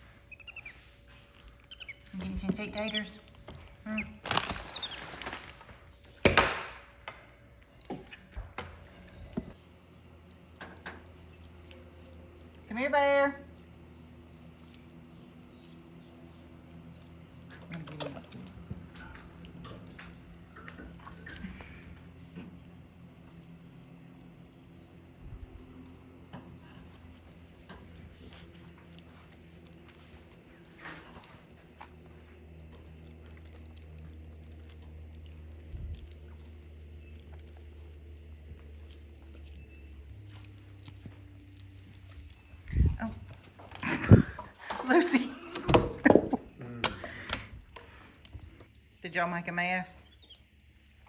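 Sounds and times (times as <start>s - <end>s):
monkeys squeaking and chirping: 0.0s - 5.2s, 7.2s - 9.3s
monkeys chewing: 0.0s - 6.4s, 7.3s - 12.8s, 13.5s - 49.0s.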